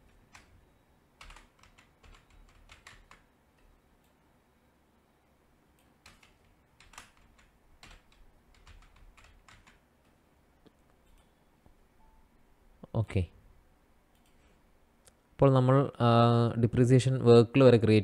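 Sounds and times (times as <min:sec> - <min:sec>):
faint keyboard typing: 0:00.0 - 0:00.6, 0:01.2 - 0:04.2, 0:05.7 - 0:11.8, 0:14.1 - 0:14.6.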